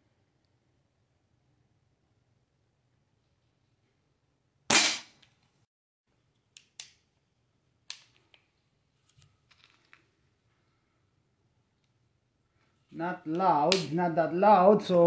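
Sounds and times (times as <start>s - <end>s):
pellet pistol shot: 4.7s - 5.2s.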